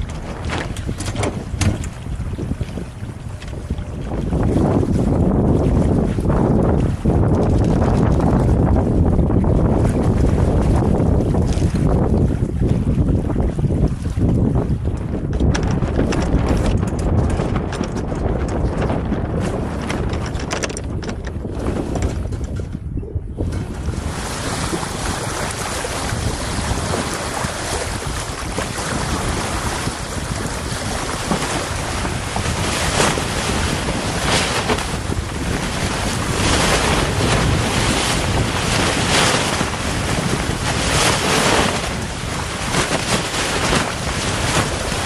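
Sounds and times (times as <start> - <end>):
water rushing along hull: 0.0 - 45.0
wind buffeting microphone: 0.0 - 45.0.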